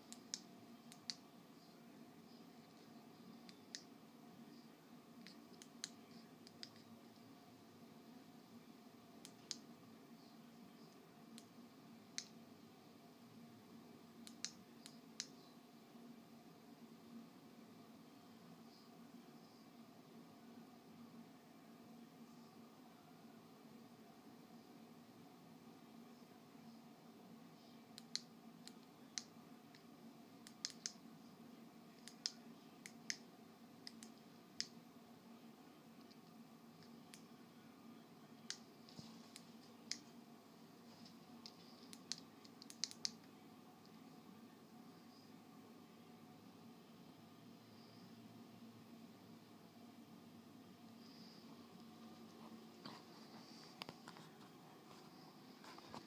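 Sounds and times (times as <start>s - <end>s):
faint steady low hum: 0.0s - 56.0s.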